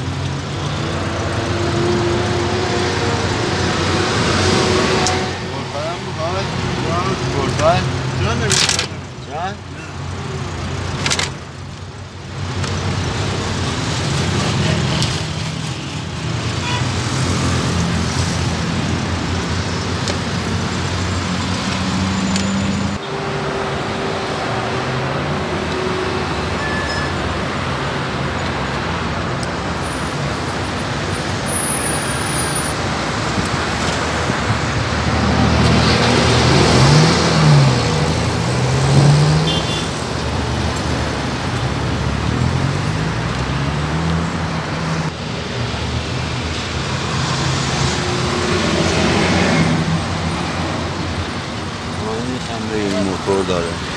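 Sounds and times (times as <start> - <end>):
vehicles passing on street: 0.0 - 53.9.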